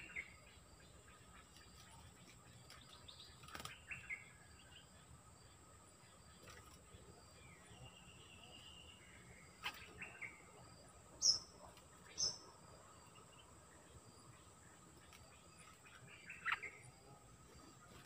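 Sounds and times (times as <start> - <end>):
bulbuls chirping and whistling: 7.5 - 10.5, 11.2 - 12.5, 15.4 - 16.9.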